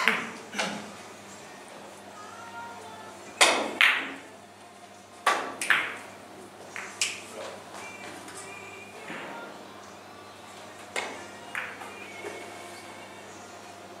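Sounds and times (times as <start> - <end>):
billiard balls clacking: 0.0 - 0.9, 5.2 - 7.6, 10.8 - 12.4
cue striking ball: 3.4 - 4.2, 5.2 - 6.0.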